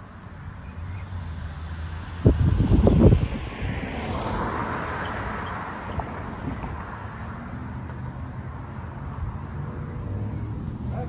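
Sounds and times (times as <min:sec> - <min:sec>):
car passing: 0:00.0 - 0:11.0
wind buffeting microphone: 0:02.1 - 0:04.5, 0:05.8 - 0:06.9.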